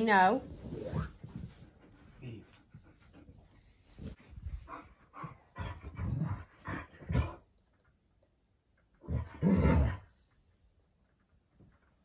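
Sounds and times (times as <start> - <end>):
dogs growling: 4.7 - 7.5, 9.0 - 10.2.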